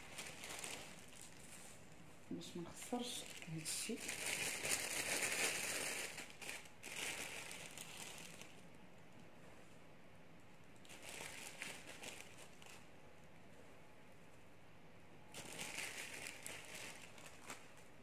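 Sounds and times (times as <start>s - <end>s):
plastic bag crinkling: 0.0s - 8.8s, 10.8s - 12.9s, 15.3s - 18.0s.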